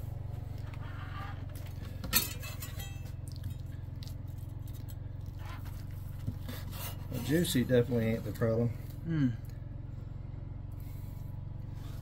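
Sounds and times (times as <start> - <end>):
steady low hum: 0.0 - 12.0
metal tongs clinking on plate: 2.2 - 3.1.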